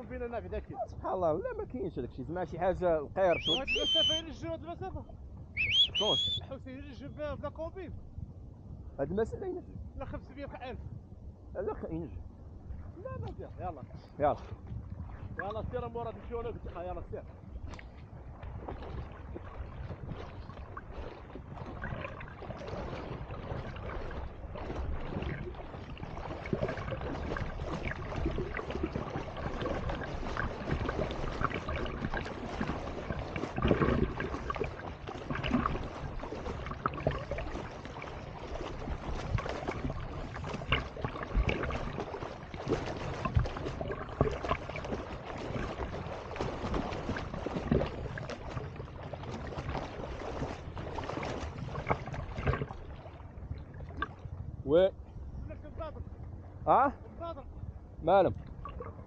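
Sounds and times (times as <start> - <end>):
water splashing from swimming: 3.2 - 4.3, 5.6 - 6.4, 17.6 - 54.3, 58.4 - 59.0.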